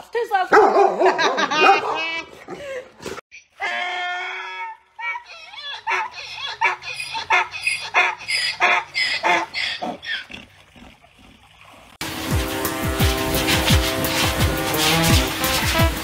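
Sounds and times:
donkey braying: 3.6s - 11.6s.

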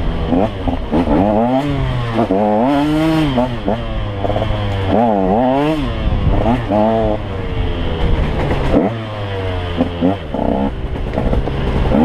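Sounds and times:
dirt bike engine revving: 0.0s - 12.0s.

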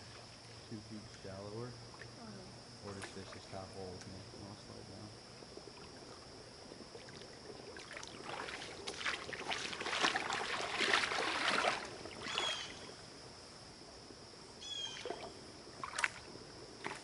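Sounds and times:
waders sloshing through water: 7.0s - 12.9s, 14.8s - 17.0s.

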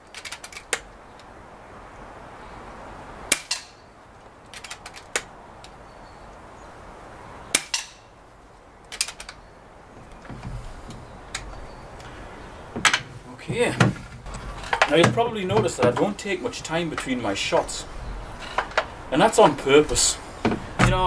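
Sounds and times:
metallic action clicks: 0.1s - 0.8s, 8.9s - 9.4s.

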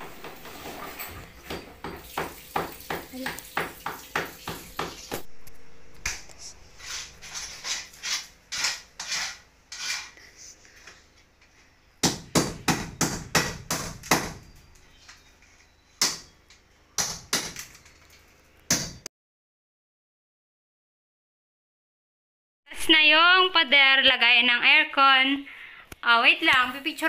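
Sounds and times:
hammer striking masonry wall: 1.5s - 5.3s, 12.0s - 14.5s, 17.0s - 17.6s.

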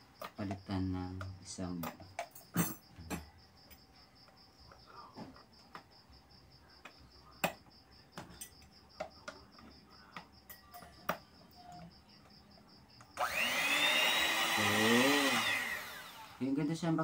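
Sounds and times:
hand mixer motor whine: 13.1s - 16.8s.

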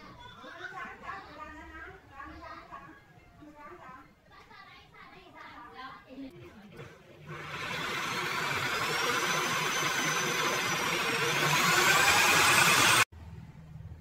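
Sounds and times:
drill press boring into wood: 7.3s - 13.1s.

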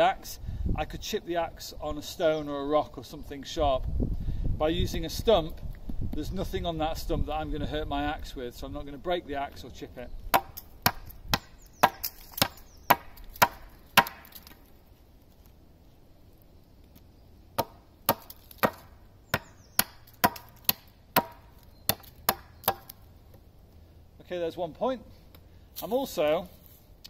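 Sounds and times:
axe chopping wood: 10.3s - 14.6s, 17.6s - 23.0s.

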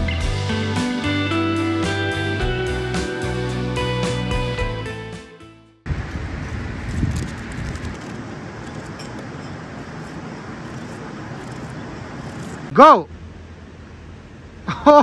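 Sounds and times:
music track: 0.0s - 5.8s
rushing outdoor noise: 5.8s - 15.0s.

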